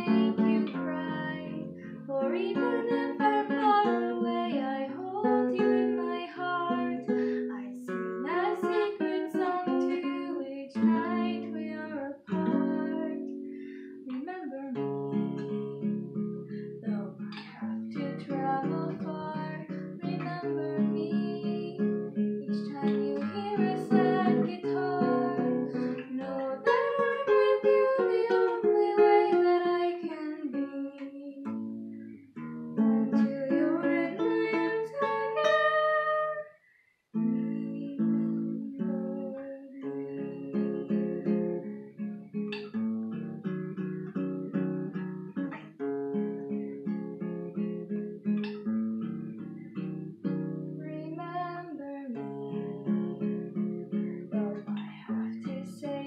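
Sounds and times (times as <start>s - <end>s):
woman singing: 0.0s - 31.8s, 32.8s - 36.6s, 37.2s - 42.1s, 50.7s - 56.0s
classical guitar fingerpicking: 0.0s - 56.0s.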